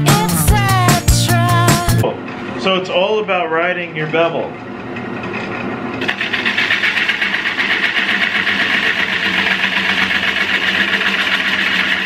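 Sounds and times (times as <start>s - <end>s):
wood lathe turning tool scraping: 6.0s - 12.0s.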